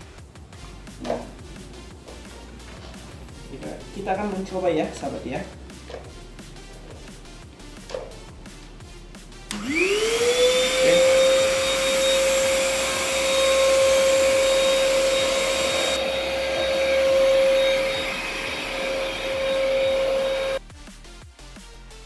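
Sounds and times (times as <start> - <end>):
vacuum cleaner motor whine: 9.5 - 20.6
vacuum nozzle sucking on carpet: 9.5 - 20.6.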